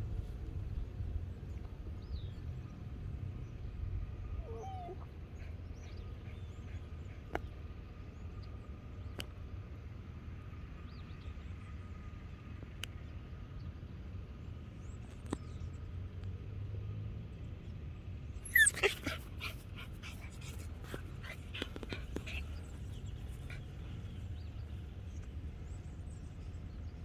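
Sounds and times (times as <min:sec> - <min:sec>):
faint low rumble: 0:00.0 - 0:27.0
puppy yelping and whimpering: 0:04.4 - 0:05.1, 0:18.4 - 0:20.6.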